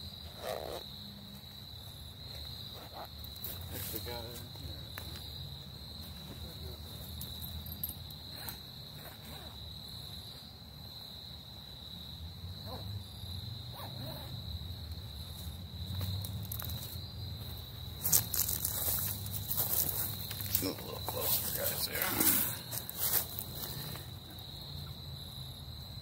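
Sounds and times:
crickets trilling: 0.0s - 26.0s
footsteps on dry leaves: 18.0s - 24.1s.

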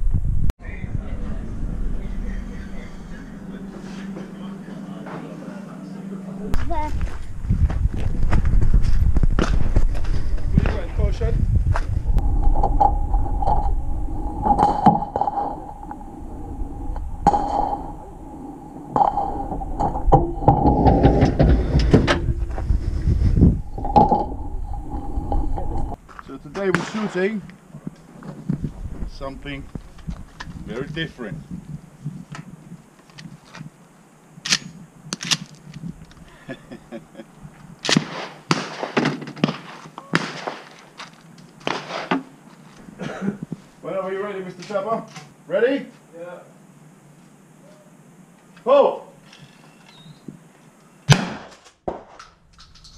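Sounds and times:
steady low rumble: 0.0s - 26.6s, 27.5s - 37.8s
faint steady hum: 0.4s - 10.4s, 11.0s - 38.5s, 42.2s - 51.1s.

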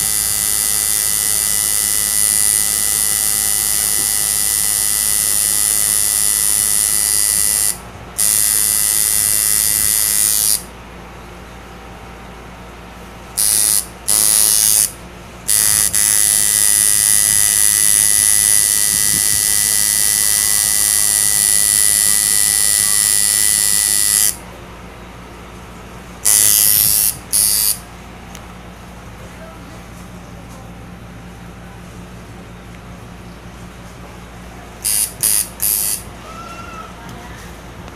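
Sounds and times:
tattoo machine buzzing: 0.0s - 10.7s, 13.3s - 24.4s, 26.2s - 27.8s, 34.8s - 36.1s.

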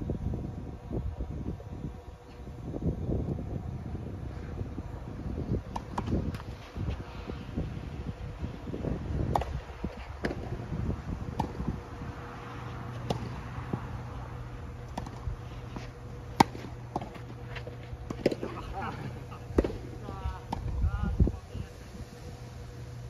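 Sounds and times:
steady low hum: 0.0s - 23.0s
tennis ball struck by rackets: 9.3s - 10.5s, 11.3s - 11.6s, 12.9s - 13.9s, 14.9s - 18.8s, 19.5s - 20.8s.

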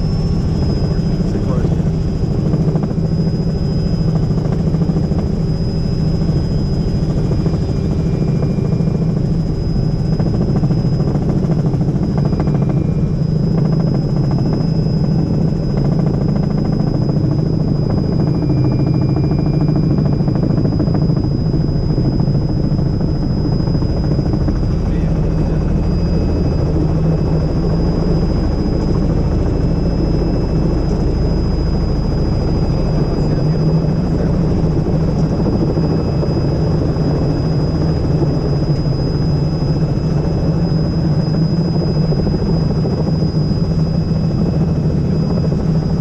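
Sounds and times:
helicopter engine and rotor drone: 0.0s - 46.0s.

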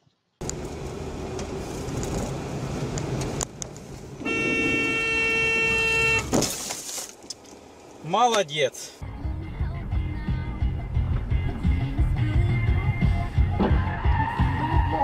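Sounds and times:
road and engine noise inside car: 0.4s - 9.0s
car horn held: 4.2s - 6.3s.

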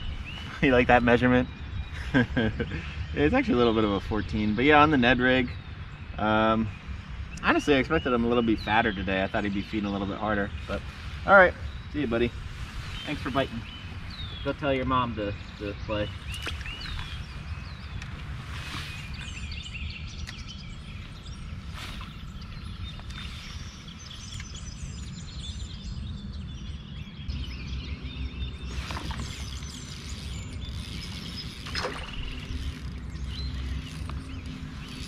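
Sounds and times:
songbirds chirping and trilling: 0.0s - 35.0s.

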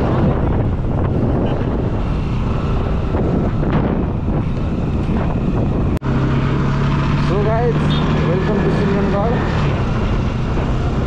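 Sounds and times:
wind buffeting microphone: 0.0s - 7.1s
motorcycle engine: 0.0s - 11.0s
road noise: 0.0s - 11.0s.

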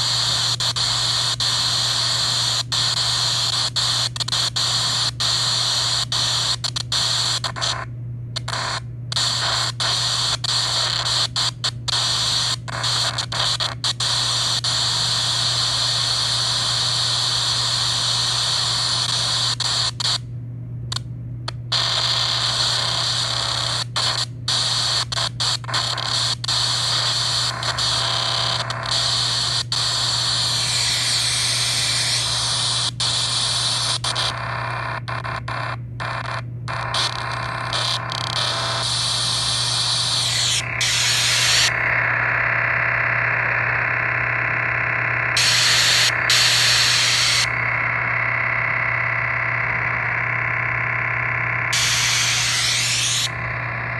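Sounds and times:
radio static hissing: 0.0s - 20.2s, 21.7s - 53.9s
low hum: 34.3s - 53.9s.

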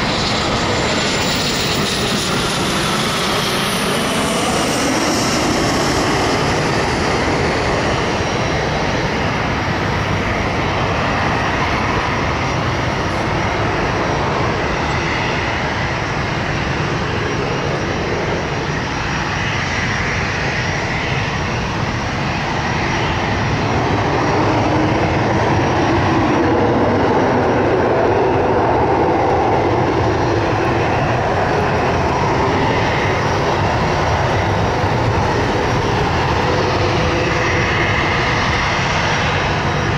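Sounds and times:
jet engines rumbling with whine: 0.0s - 39.9s.

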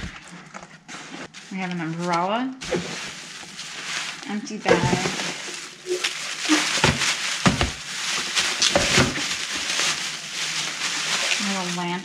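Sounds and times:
plastic bags rustling: 0.0s - 12.0s
sharp crackles: 2.6s - 12.0s.

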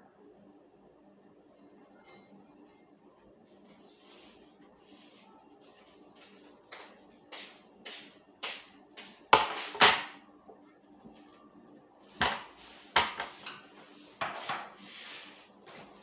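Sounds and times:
faint steady hum: 0.0s - 9.4s
dishes and utensils clattering: 12.2s - 14.8s.

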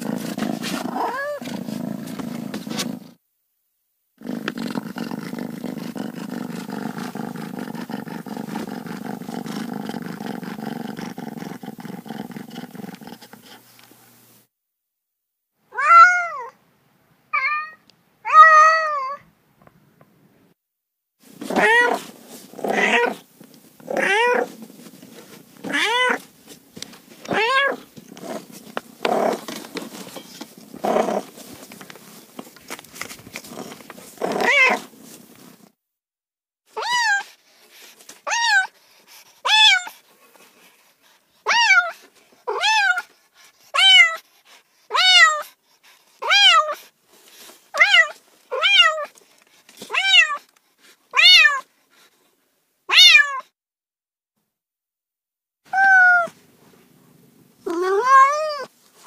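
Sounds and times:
cats meowing: 0.9s - 1.4s, 15.7s - 16.5s, 21.5s - 22.0s, 24.0s - 24.5s, 25.7s - 26.2s, 27.3s - 27.9s, 34.3s - 34.8s, 43.8s - 44.2s, 44.9s - 45.4s, 47.8s - 49.1s, 49.9s - 50.5s, 51.2s - 51.7s, 52.9s - 53.4s, 55.7s - 56.4s, 57.7s - 58.7s
background hiss: 21.2s - 35.8s.

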